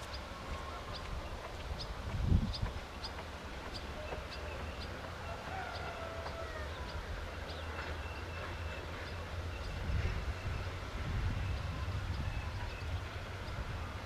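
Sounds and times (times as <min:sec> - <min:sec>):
diesel locomotive low rumble: 0:00.0 - 0:14.0
small birds chirping: 0:00.0 - 0:14.0.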